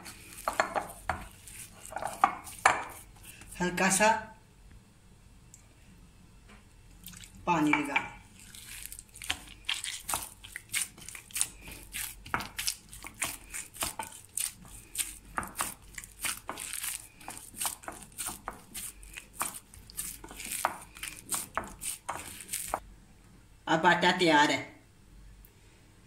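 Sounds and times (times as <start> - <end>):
hands kneading wet dough: 0.0 - 3.7, 6.9 - 22.8.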